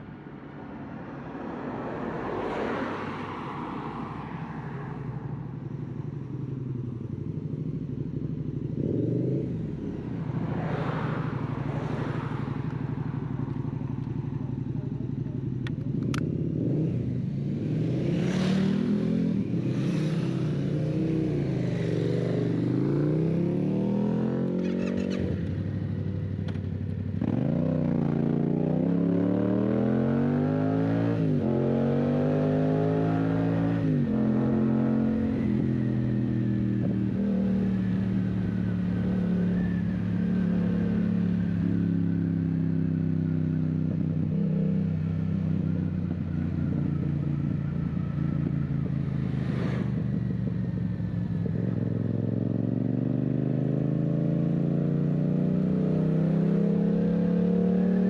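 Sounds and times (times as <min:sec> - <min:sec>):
motorcycle engine revving through gears: 0:15.9 - 0:58.0.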